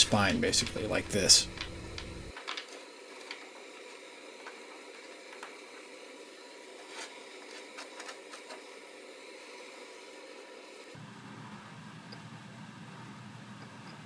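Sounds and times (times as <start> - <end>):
low steady hiss: 0.0 - 14.0
metal blocks clicking and tapping: 0.6 - 3.6.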